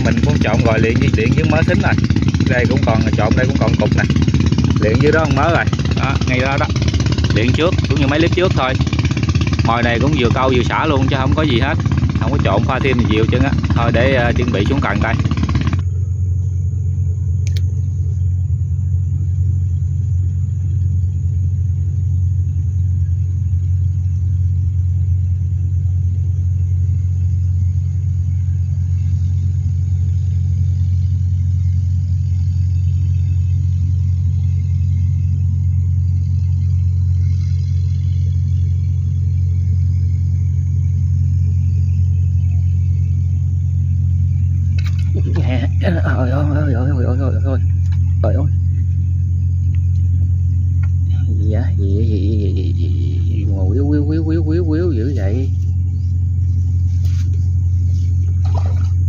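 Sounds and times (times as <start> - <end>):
engine droning: 0.0 - 59.0
short click: 17.4 - 17.7.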